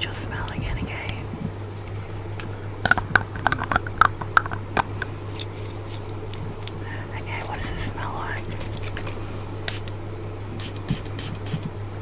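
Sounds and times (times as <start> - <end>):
plastic container clicks and crackles: 2.8 - 6.1.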